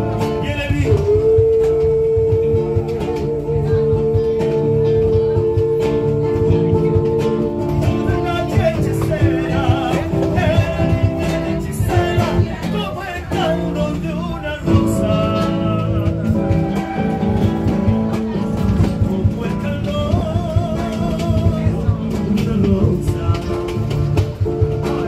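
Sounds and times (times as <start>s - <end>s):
acoustic guitar strumming: 0.0s - 25.0s
person singing: 0.0s - 25.0s.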